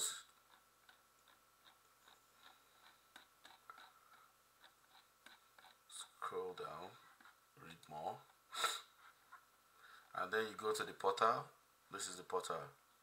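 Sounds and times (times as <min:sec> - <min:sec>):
low background hum: 0:00.0 - 0:13.0
mouse scroll wheel ticking: 0:00.4 - 0:07.4.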